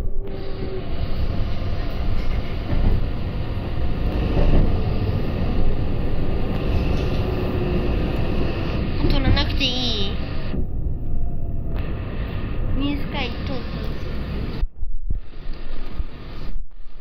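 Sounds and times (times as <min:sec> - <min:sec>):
train wheels rumbling on rail: 0:00.0 - 0:14.6.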